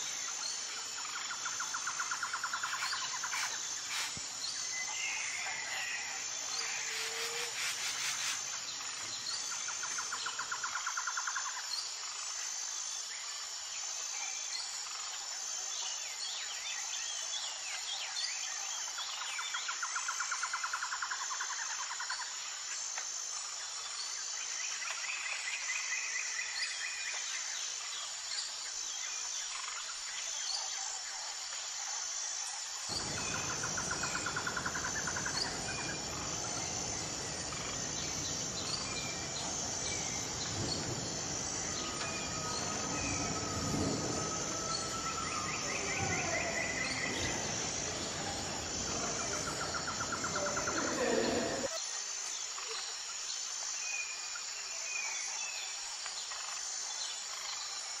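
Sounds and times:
bird calls: 0:00.0 - 0:08.4
insects chirring: 0:00.0 - 0:58.0.

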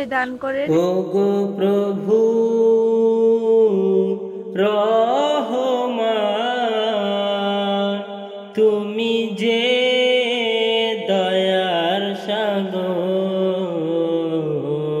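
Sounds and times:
person singing devotional song: 0:00.0 - 0:15.0.

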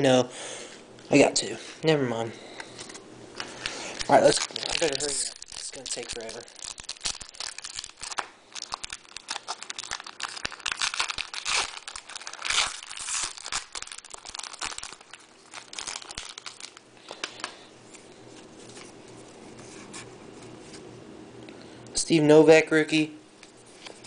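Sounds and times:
foil wrapper tearing and crinkling: 0:04.0 - 0:17.6.

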